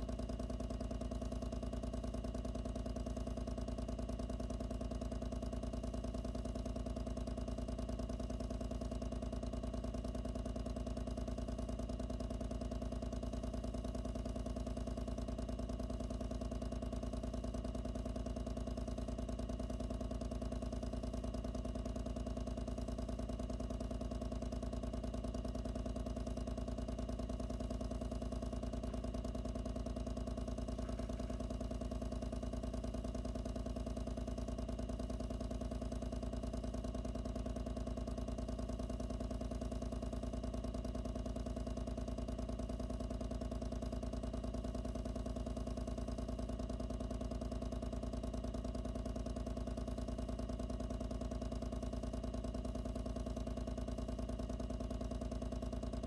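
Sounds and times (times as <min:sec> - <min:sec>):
electric water pump humming: 0:28.2 - 0:32.1.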